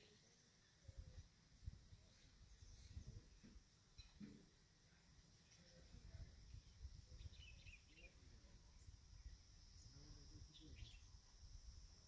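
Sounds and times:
high insect drone: 0:06.9 - 0:12.0.

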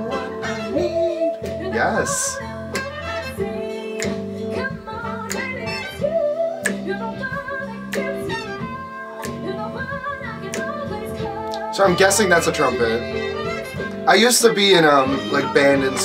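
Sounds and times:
woman singing with vibrato: 0:00.0 - 0:11.8
live band playing: 0:00.0 - 0:16.0.

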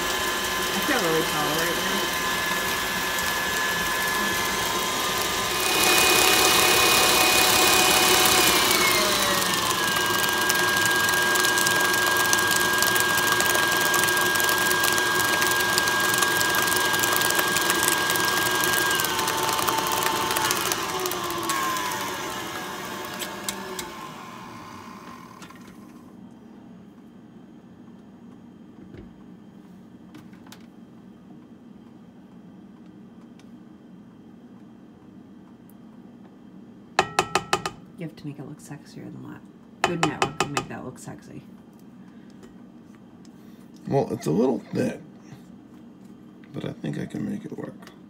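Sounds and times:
stand mixer motor whining: 0:00.0 - 0:25.8.

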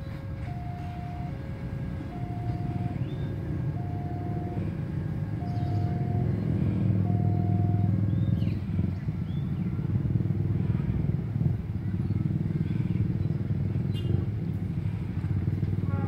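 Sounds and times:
two-tone crossing alarm: 0:00.0 - 0:08.0
rumble of engines: 0:00.0 - 0:16.0.

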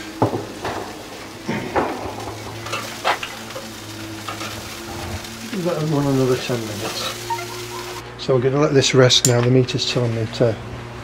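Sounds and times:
chicken sizzling on a grill: 0:00.0 - 0:08.1
utensils knocking and clattering: 0:00.1 - 0:04.6.

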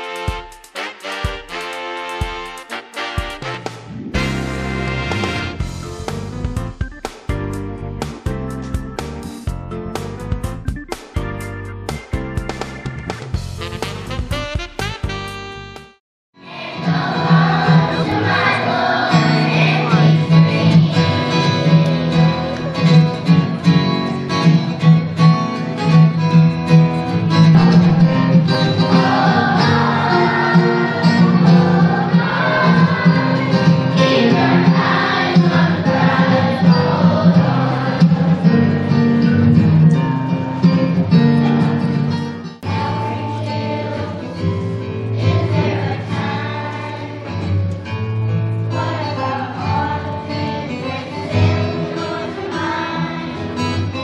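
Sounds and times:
instrumental accompaniment: 0:00.0 - 0:54.0
children's choir singing: 0:16.4 - 0:25.7, 0:27.0 - 0:39.6, 0:40.8 - 0:47.8, 0:48.6 - 0:54.0.

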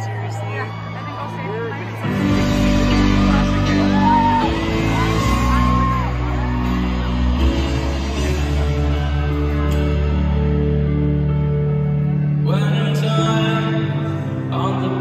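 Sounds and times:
person singing: 0:12.3 - 0:15.0.

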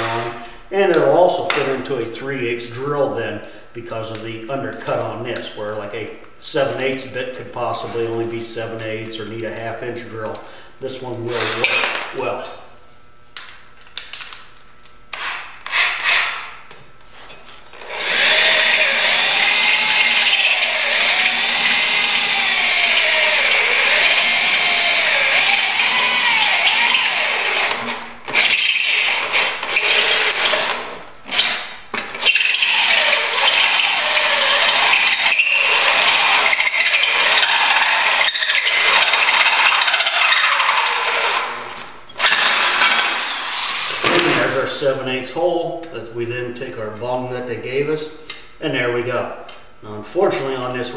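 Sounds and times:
electric drill grinding through steel: 0:00.0 - 0:00.4, 0:11.3 - 0:12.0, 0:15.1 - 0:16.5, 0:17.8 - 0:44.2.

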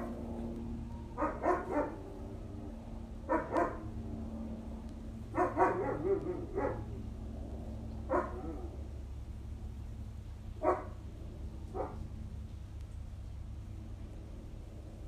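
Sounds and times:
dog barking: 0:01.2 - 0:02.0, 0:03.3 - 0:03.9, 0:05.3 - 0:07.0, 0:08.1 - 0:08.7, 0:10.6 - 0:11.0, 0:11.7 - 0:12.0.

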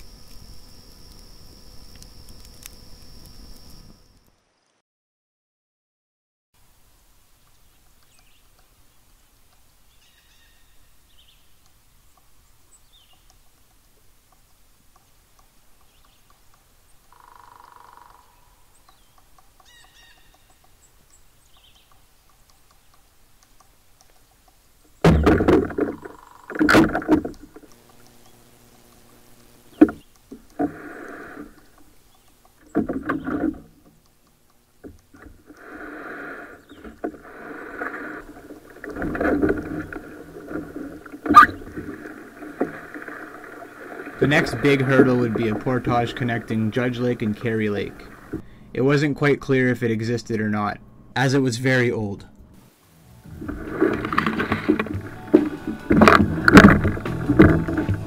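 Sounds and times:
faint bird chirps: 0:09.8 - 0:13.4, 0:15.8 - 0:22.0
gear knocking against canoe hull: 0:25.0 - 0:28.0, 0:31.4 - 0:34.0, 0:53.4 - 0:58.0.

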